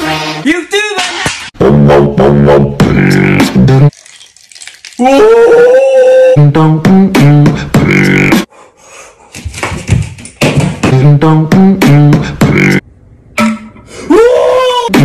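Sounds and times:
beatboxed vocal notes: 1.6 - 3.9, 6.3 - 8.5, 11.0 - 12.8.

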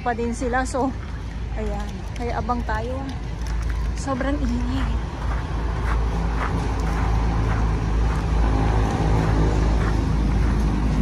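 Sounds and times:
vehicle engines droning: 0.0 - 11.0.

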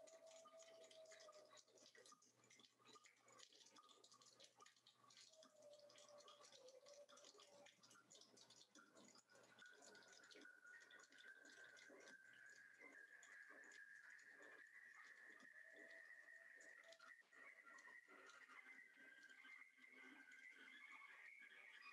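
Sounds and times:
small clicks and taps: 0.0 - 20.9.

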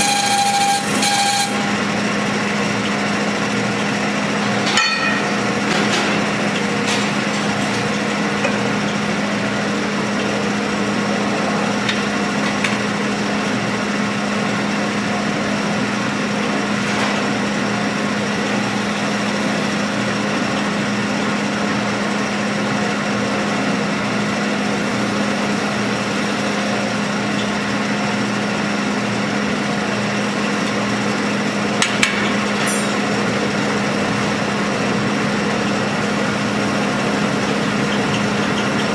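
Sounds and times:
lathe humming: 0.0 - 11.9, 33.0 - 38.9.

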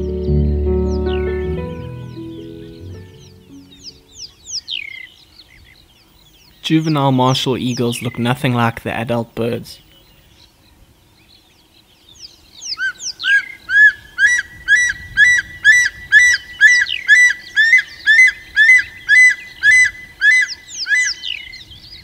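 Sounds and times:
eagle whistled calls: 12.6 - 22.0.

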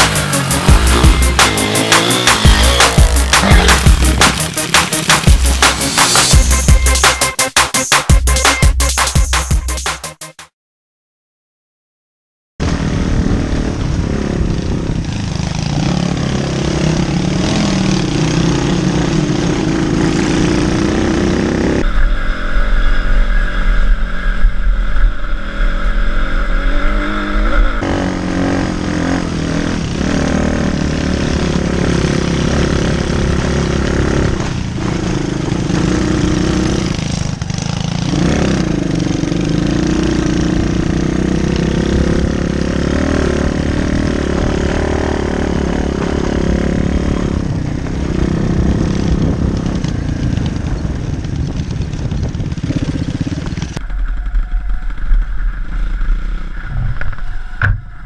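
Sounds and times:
motorbike engine revving: 0.0 - 7.3, 12.6 - 21.9, 25.4 - 54.3
wind buffeting microphone: 12.6 - 15.7, 45.9 - 55.8.

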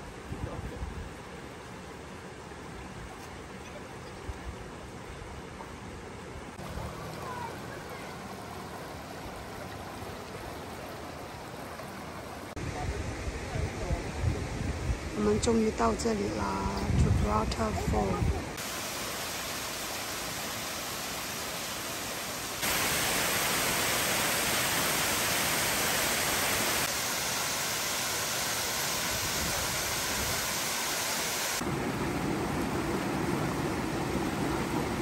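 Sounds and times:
waterfall roaring: 6.5 - 13.0, 17.5 - 35.0.

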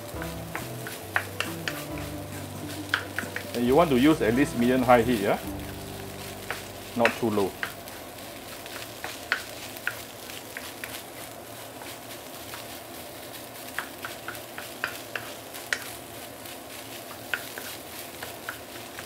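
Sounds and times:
rice and egg sizzling: 0.0 - 19.0
spatula tapping and scraping pan: 0.2 - 3.6, 6.4 - 7.8, 8.6 - 11.0, 13.6 - 16.0, 16.9 - 19.0.

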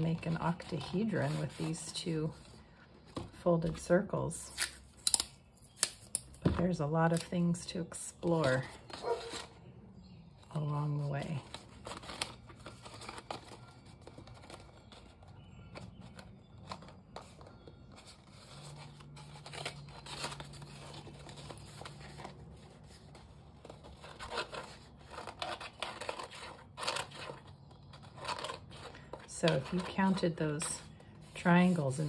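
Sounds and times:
paper rustling: 10.6 - 32.0.

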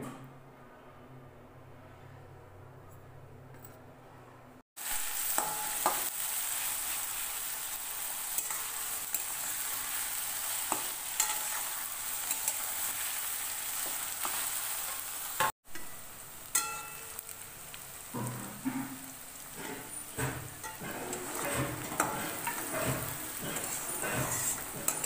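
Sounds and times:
onions sizzling in oil: 4.8 - 25.0
spatula scraping pan: 8.2 - 15.6, 18.1 - 25.0.

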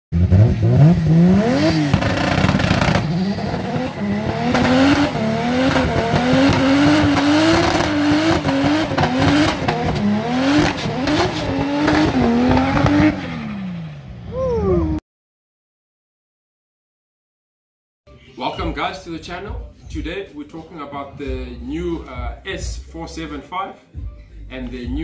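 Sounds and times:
car engine revving: 0.1 - 14.3.

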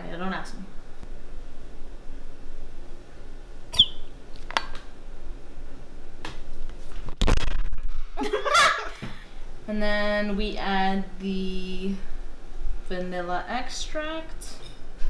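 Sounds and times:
squeeze bottle squeak: 3.8 - 4.0.

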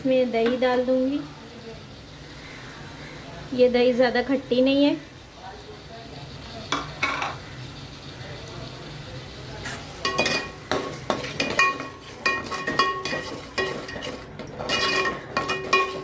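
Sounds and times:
metal skimmer scraping a pot: 10.1 - 16.0.

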